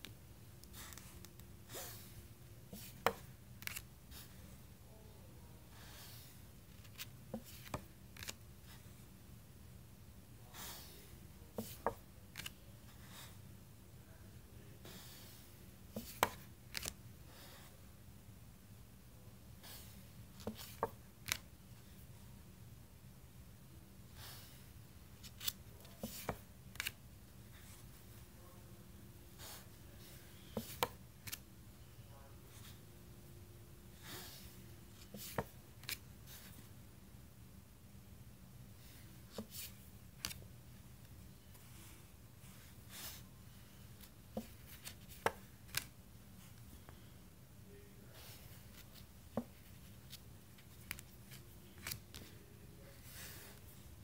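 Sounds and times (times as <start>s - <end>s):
cards sliding: 2.7s - 3.9s, 6.7s - 8.4s, 16.0s - 17.0s, 20.4s - 21.4s, 25.2s - 27.0s, 30.6s - 31.4s, 34.9s - 36.5s, 39.3s - 40.4s, 44.0s - 45.9s, 48.7s - 52.4s
cards clicking and tapping: 16.0s - 17.0s, 25.3s - 27.0s, 30.5s - 31.4s, 44.3s - 45.9s, 48.8s - 52.3s
card sliding with soft swish: 48.7s - 52.3s.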